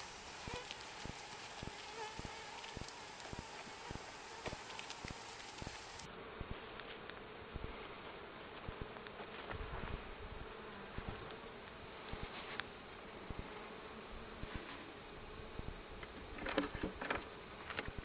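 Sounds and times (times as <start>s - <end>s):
honeybees buzzing: 0.0s - 6.1s.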